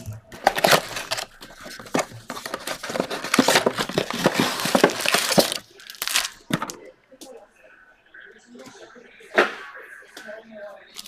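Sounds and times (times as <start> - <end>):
plastic wrap crinkling and tearing: 0.0 - 6.5.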